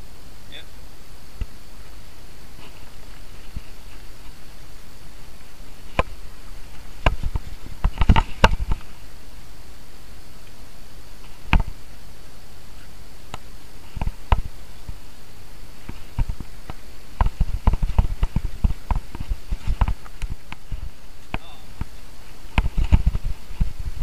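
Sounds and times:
wind and tyre noise: 0.0s - 24.0s
bike rattling over bumps: 2.5s - 9.1s, 15.7s - 24.0s.

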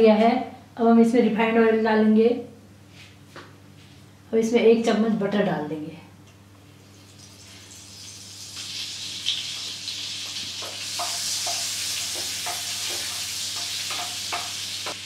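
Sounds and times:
butter sizzling in frying pan: 6.9s - 15.0s
wooden spatula tapping and scraping: 10.6s - 15.0s.

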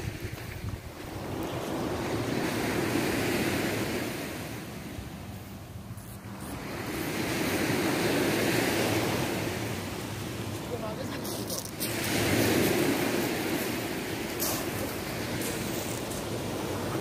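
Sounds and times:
wind on microphone: 0.0s - 5.3s
sea waves washing onto beach: 0.0s - 17.0s.

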